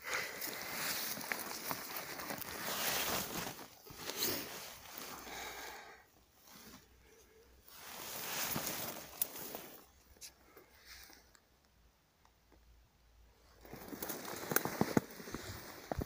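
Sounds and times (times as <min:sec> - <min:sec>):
brushing past shrubs: 0:00.1 - 0:05.5, 0:07.6 - 0:11.2
boots crunching through snow: 0:00.3 - 0:05.4, 0:07.8 - 0:09.8.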